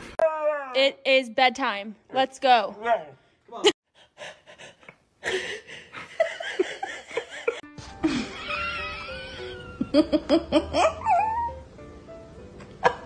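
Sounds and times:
people laughing: 5.9s - 11.0s
background music: 6.2s - 13.0s.

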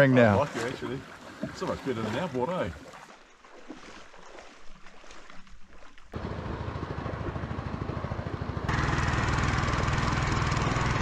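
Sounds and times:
boat motor running: 6.2s - 11.0s.

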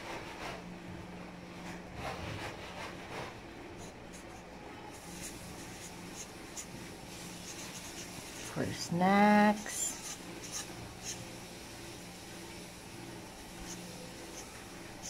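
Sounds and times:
marker scratching on paper: 2.0s - 8.7s, 9.6s - 11.3s, 13.5s - 15.0s.

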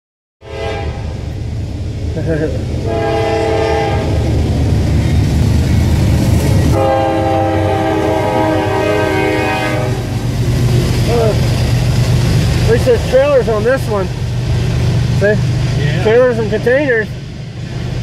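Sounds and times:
locomotive air horn chord: 0.4s - 1.1s, 2.8s - 4.2s, 6.7s - 10.1s
diesel locomotive engine rumble: 0.4s - 18.0s.

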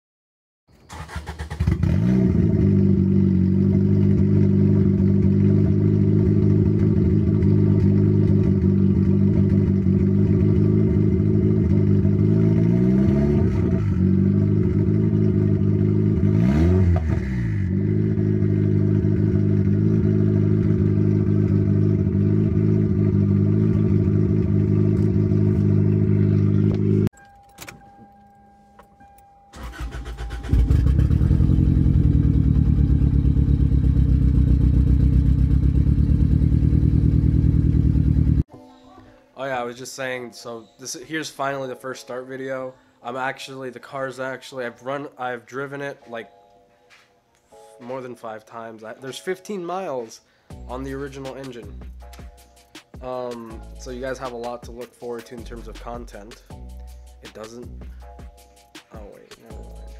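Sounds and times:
car engine idling: 2.4s - 38.4s.

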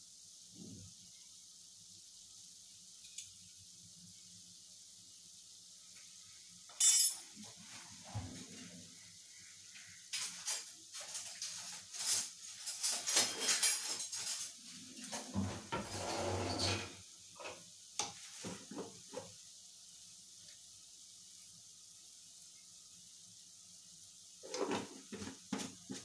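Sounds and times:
utensils and jars clinking: 6.7s - 7.2s, 10.1s - 17.0s
utensil scraping on counter: 10.3s - 17.6s, 24.4s - 26.0s.

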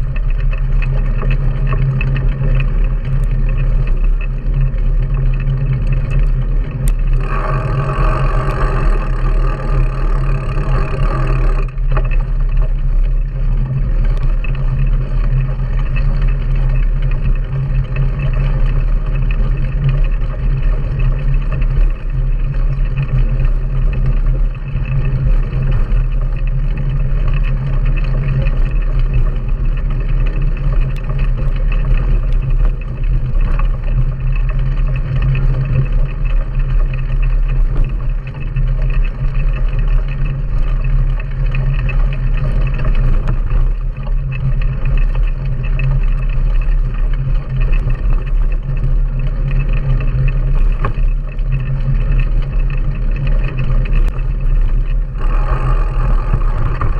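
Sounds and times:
tyres rolling on dirt track: 0.0s - 56.9s
wind buffeting microphone: 0.0s - 56.9s
high steady buzzing: 6.6s - 13.3s, 53.9s - 56.9s.

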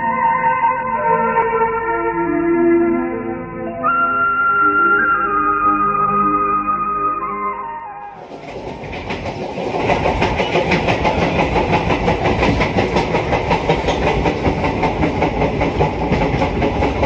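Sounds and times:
train carriage rumble and rattle: 8.0s - 17.0s.

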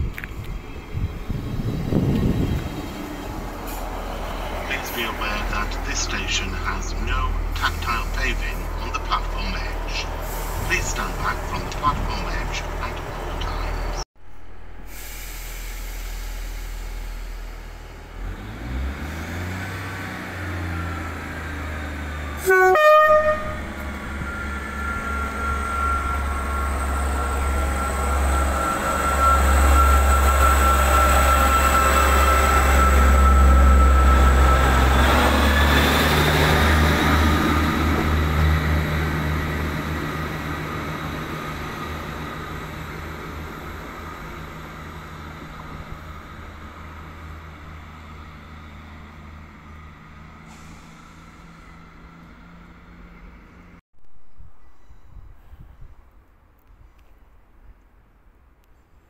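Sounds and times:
diesel train engine rumble: 0.0s - 53.8s
train horn blast: 22.4s - 35.9s.

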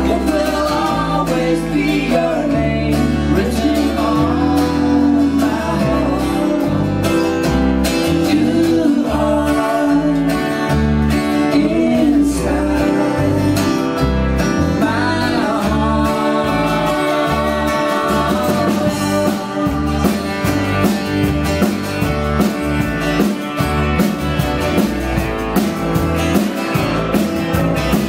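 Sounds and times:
man singing lead: 0.0s - 21.0s
low bass notes: 0.0s - 28.0s
strummed acoustic guitar: 0.0s - 28.0s
woman singing harmony: 14.8s - 20.2s.

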